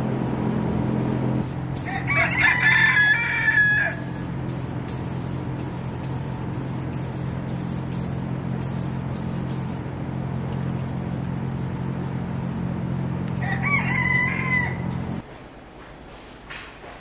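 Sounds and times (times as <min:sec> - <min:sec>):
steady machine hum: 0:00.0 - 0:15.2
rooster crowing: 0:01.8 - 0:04.3, 0:13.4 - 0:15.0
short hissing bursts: 0:03.9 - 0:09.8.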